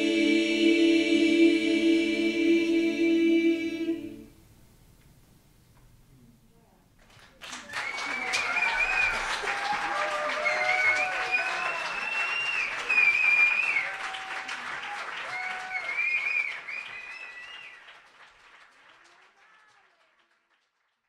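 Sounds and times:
audience applauding: 0:07.0 - 0:21.0
whoops and cheers: 0:07.6 - 0:17.7.

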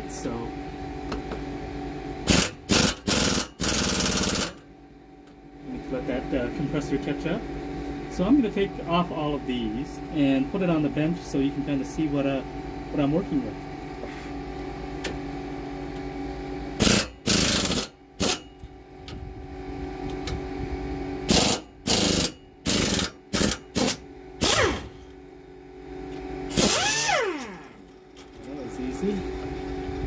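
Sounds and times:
air compressor humming: 0:00.0 - 0:30.0
pneumatic air ratchet bursts: 0:02.3 - 0:04.6, 0:16.8 - 0:18.4, 0:21.3 - 0:25.0, 0:26.5 - 0:27.8.

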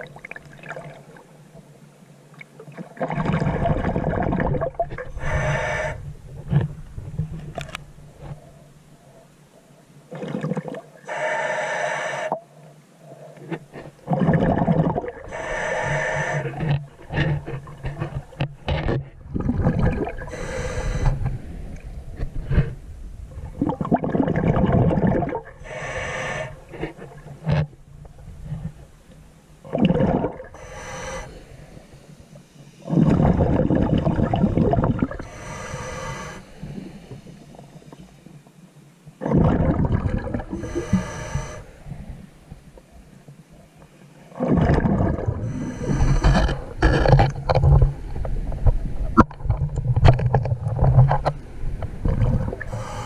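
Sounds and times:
exhaled bubbles rushing underwater: 0:02.9 - 0:05.9, 0:14.0 - 0:18.4, 0:19.2 - 0:20.7, 0:23.4 - 0:26.0, 0:29.6 - 0:30.6, 0:32.9 - 0:35.3, 0:39.2 - 0:41.6, 0:44.3 - 0:51.1, 0:51.9 - 0:53.0
regulator inhale: 0:05.1 - 0:06.1, 0:11.1 - 0:12.4, 0:15.3 - 0:17.4, 0:20.2 - 0:21.8, 0:25.6 - 0:27.0, 0:30.5 - 0:33.0, 0:35.2 - 0:38.4, 0:40.5 - 0:42.3, 0:45.4 - 0:46.8, 0:52.6 - 0:53.0.

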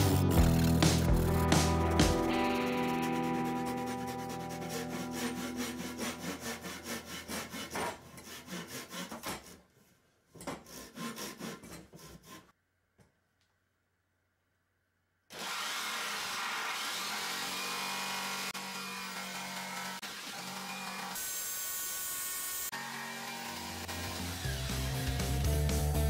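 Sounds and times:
hand saw cutting wood: 0:02.7 - 0:09.7, 0:10.4 - 0:12.5, 0:15.3 - 0:25.2
electric jigsaw running: 0:15.3 - 0:25.4.

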